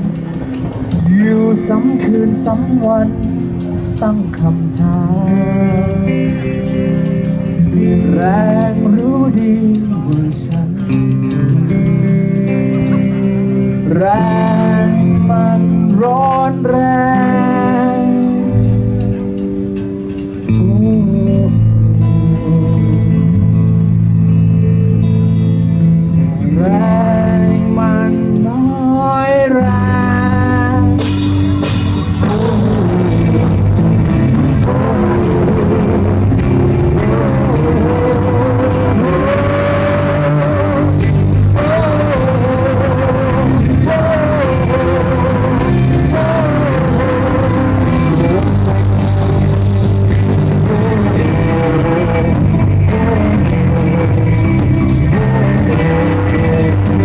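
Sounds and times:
electric bass: 0:00.0 - 0:57.0
electric guitar: 0:00.0 - 0:57.0
drum kit: 0:30.8 - 0:57.0.

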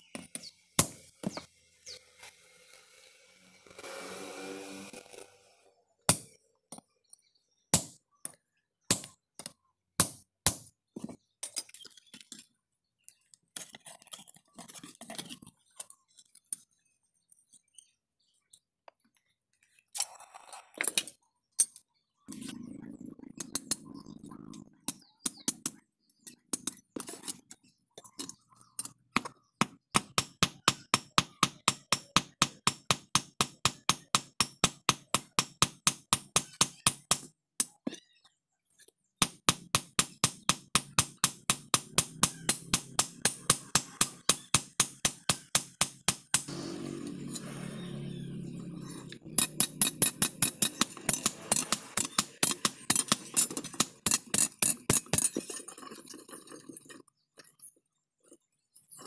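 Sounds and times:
hammer striking metal on anvil: 0:39.2 - 0:46.6, 0:49.4 - 0:55.0.

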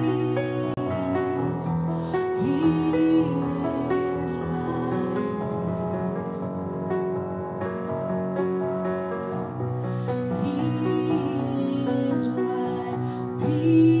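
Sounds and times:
woman singing gospel song: 0:02.4 - 0:05.6, 0:10.4 - 0:14.0.

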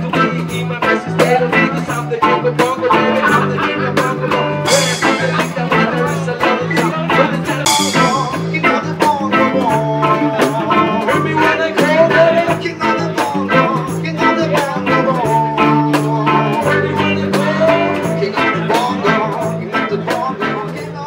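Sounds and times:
reggae band playing: 0:00.0 - 0:21.0
cymbal crashes: 0:07.7 - 0:08.6.

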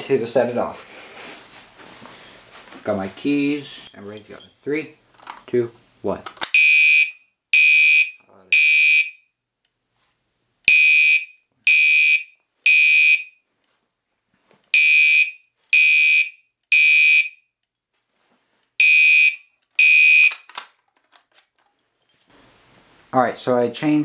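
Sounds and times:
fire alarm horn beeping: 0:06.6 - 0:09.3, 0:10.7 - 0:13.4, 0:14.7 - 0:17.5, 0:18.8 - 0:20.4.

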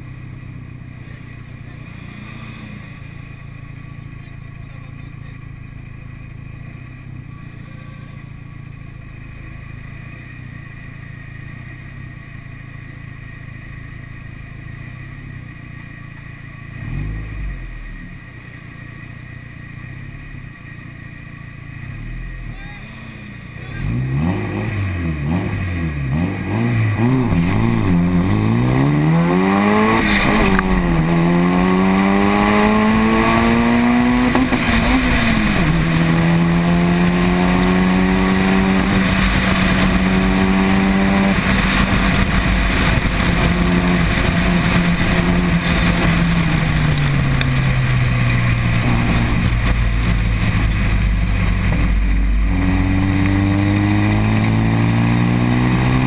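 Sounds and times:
wind and road noise: 0:00.0 - 0:56.0
car engine accelerating hard: 0:16.8 - 0:18.1, 0:21.6 - 0:56.0.

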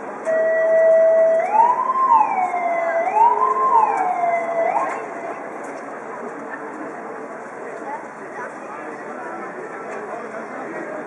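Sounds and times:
police car siren wailing: 0:00.2 - 0:05.4.

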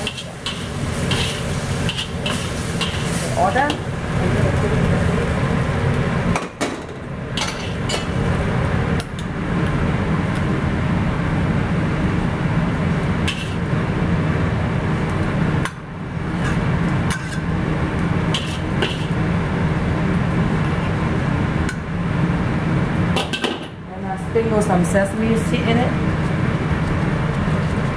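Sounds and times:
spatula scraping and clinking wok: 0:00.0 - 0:03.4, 0:16.3 - 0:17.5.

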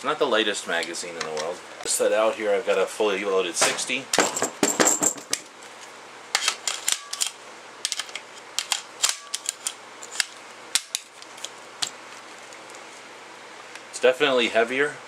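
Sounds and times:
rifle and magazines clicking: 0:06.4 - 0:12.7.

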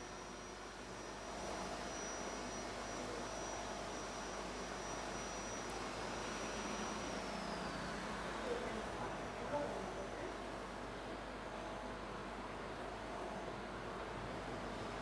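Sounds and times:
thin high whine sliding down: 0:00.0 - 0:09.5
background hiss and hum: 0:00.0 - 0:15.0.

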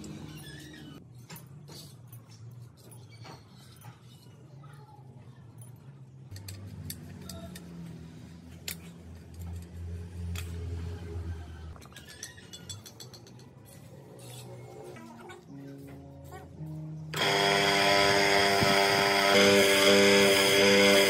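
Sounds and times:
metallic clinks of steel spokes: 0:11.8 - 0:13.6
soft background music with bass: 0:13.8 - 0:19.1.

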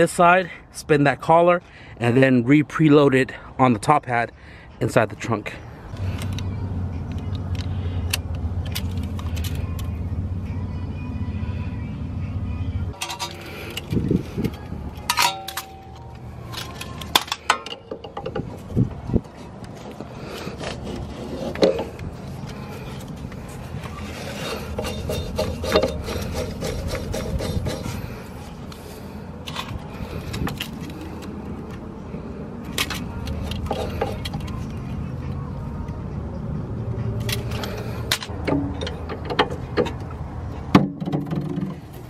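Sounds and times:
tape measure clicking and rattling: 0:07.2 - 0:09.9
tools clinking on metal: 0:13.0 - 0:18.5.

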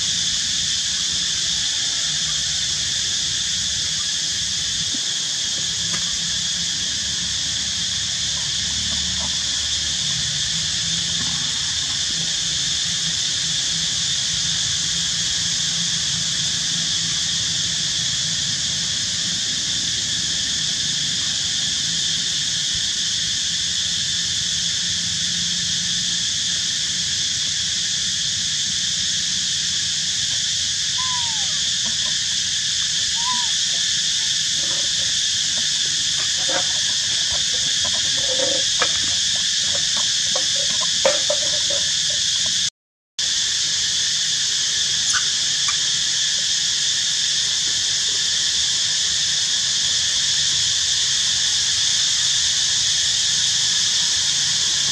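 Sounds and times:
insect chorus drone: 0:00.0 - 0:54.9
rising-and-falling calls: 0:30.8 - 0:42.5.

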